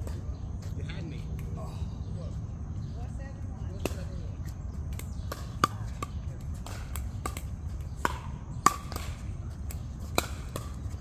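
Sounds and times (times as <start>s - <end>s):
basketballs bouncing: 5.2s - 11.0s.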